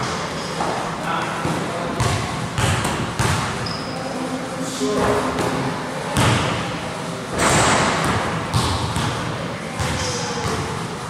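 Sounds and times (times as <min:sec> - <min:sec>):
basketball bouncing on gym floor: 0:02.0 - 0:03.8, 0:06.2 - 0:06.6, 0:07.4 - 0:10.8.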